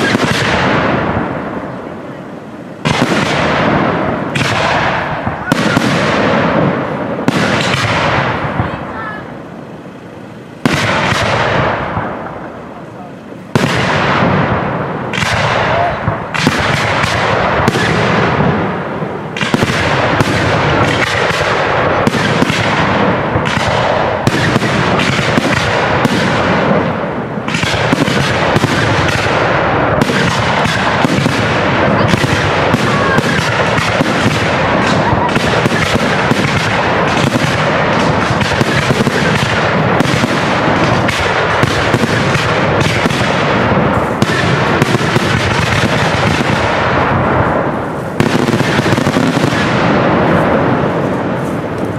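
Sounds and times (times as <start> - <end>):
firework shells bursting: 0.0 - 1.9, 2.8 - 8.8, 13.5 - 51.9.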